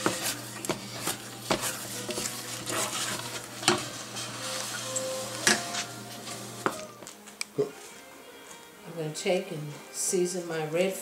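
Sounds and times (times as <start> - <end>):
spoon stirring thick stuffing: 0.0 - 6.8
sizzling pot: 0.0 - 7.0.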